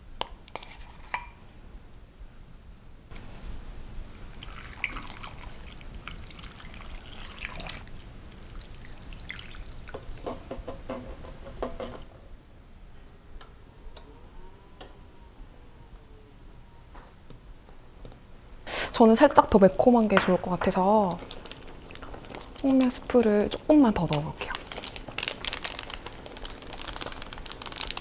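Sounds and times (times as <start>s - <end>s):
water pouring into a skillet: 4.3s - 10.0s.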